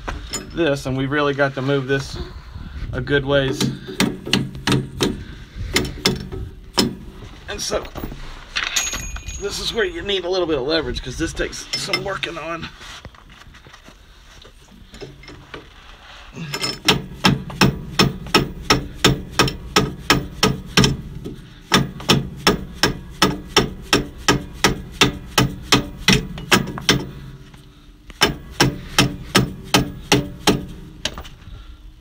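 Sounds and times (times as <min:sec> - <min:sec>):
rubber mallet beating on steel: 0:16.8 - 0:21.1, 0:21.7 - 0:27.2, 0:28.2 - 0:30.8.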